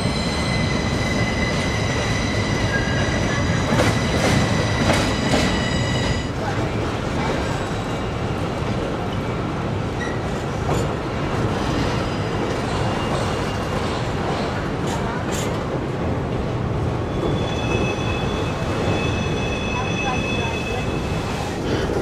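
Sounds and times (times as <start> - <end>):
train wheels rumbling on rails: 0.0 - 22.0
high wheel squeal: 17.1 - 21.4.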